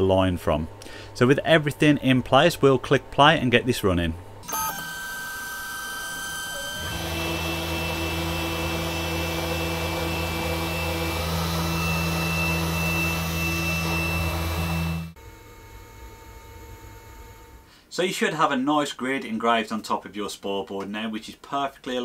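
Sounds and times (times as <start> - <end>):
router motor hum with whine: 4.4 - 17.7.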